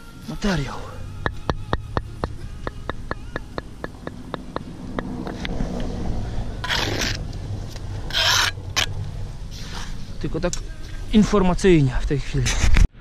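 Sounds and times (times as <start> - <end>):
short scrapes: 6.6 - 7.3, 8.1 - 10.2.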